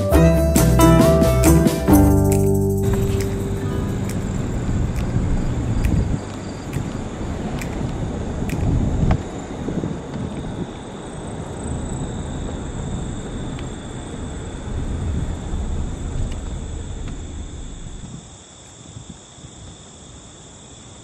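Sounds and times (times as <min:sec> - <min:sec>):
high-pitched whine: 0:00.0 - 0:07.4.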